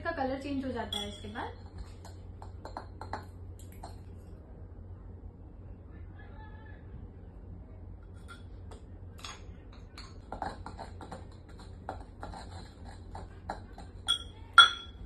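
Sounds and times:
low steady hum: 0.0s - 15.0s
pestle grinding in mortar: 9.9s - 15.0s.

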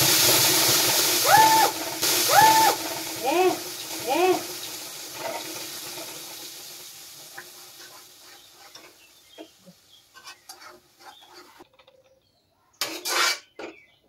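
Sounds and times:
spices sizzling in hot oil: 0.0s - 11.6s
gravy scraped into pan: 10.1s - 11.7s, 12.8s - 13.6s.

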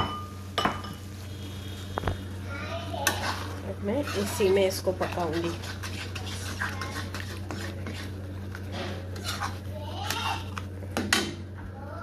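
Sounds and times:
metal spatula scraping a pan: 2.9s - 10.4s.

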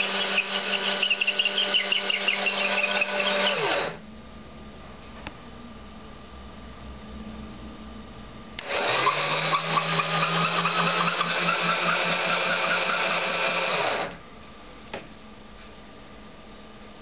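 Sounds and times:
small electric motor running: 0.0s - 4.0s, 8.6s - 14.2s.

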